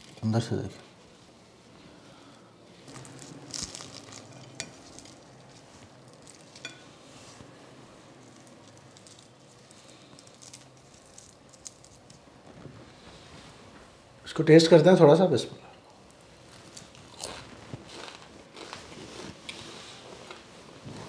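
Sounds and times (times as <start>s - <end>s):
flatbread crackling as torn: 2.8s - 6.8s, 8.2s - 12.2s, 16.1s - 20.1s.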